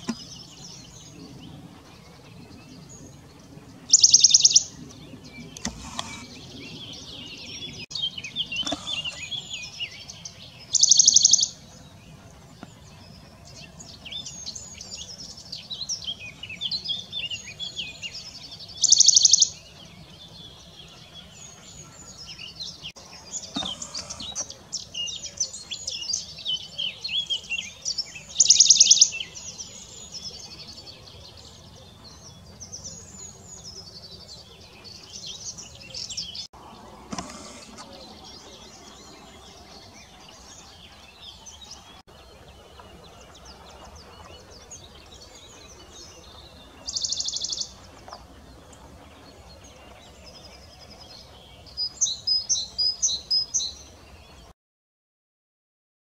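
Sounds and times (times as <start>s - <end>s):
warbler trilling: 3.9s - 11.7s.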